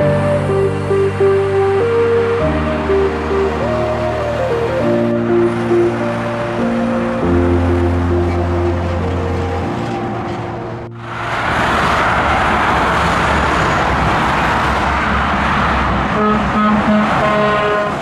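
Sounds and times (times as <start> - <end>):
trucks passing on motorway: 0.0 - 18.0
truck air horn: 16.1 - 18.0.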